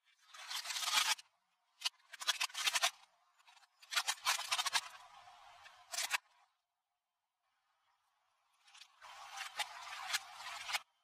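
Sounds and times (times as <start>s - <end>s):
plastic toy cracking under tyre: 0.5s - 1.2s, 1.8s - 3.0s, 3.8s - 5.0s.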